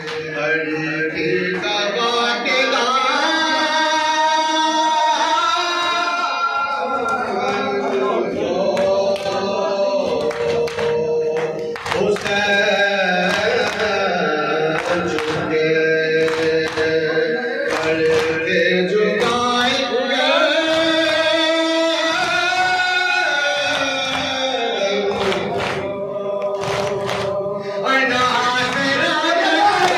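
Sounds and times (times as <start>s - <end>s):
voices chanting a lament: 0.0s - 29.9s
hands slapping chests: 10.1s - 12.4s, 14.8s - 15.5s, 17.7s - 18.4s, 25.1s - 27.4s.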